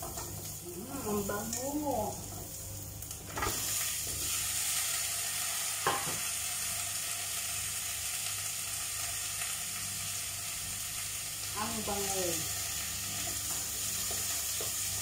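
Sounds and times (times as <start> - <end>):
food sizzling in hot oil: 0.0 - 15.0.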